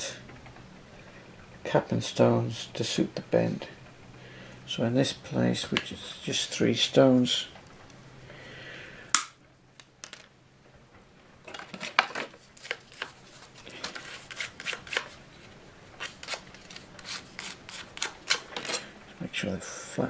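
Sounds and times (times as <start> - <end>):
scraping strokes on wood: 11.5 - 18.9.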